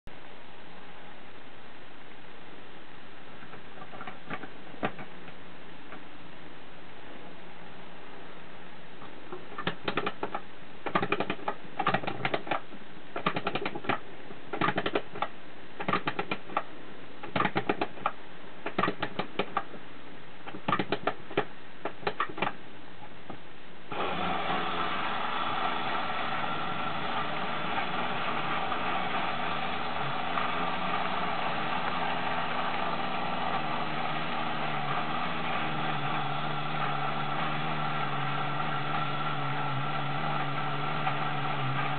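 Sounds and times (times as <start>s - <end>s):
spring motor whirring: 23.9s - 41.9s.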